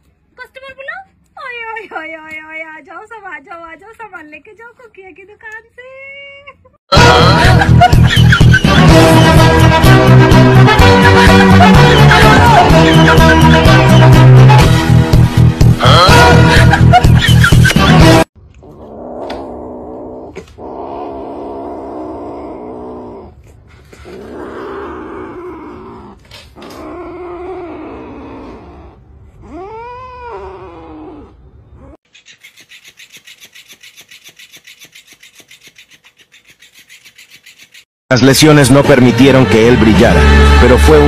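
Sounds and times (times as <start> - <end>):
kitten growling: 18.6 - 32.0.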